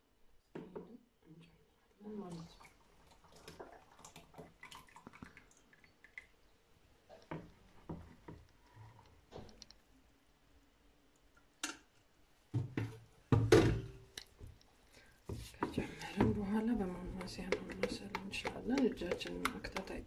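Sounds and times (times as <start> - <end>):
soft wet plops: 2.2 - 8.6
wooden spoon scraping a saucepan: 15.3 - 20.0.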